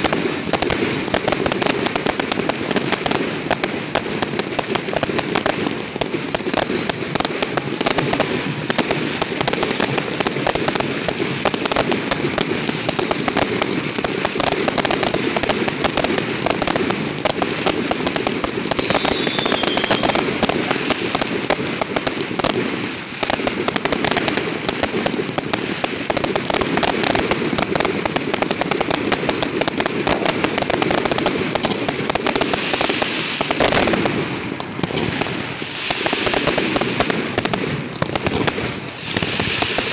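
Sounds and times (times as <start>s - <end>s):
fireworks bangs and crackling: 0.0s - 39.9s
falling firework whistle: 18.2s - 21.5s, 38.8s - 39.9s.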